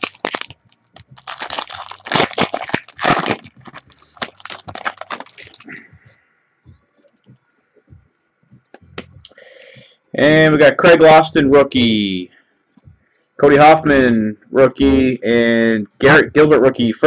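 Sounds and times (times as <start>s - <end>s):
wrapper tearing and crinkling: 0.0s - 5.8s.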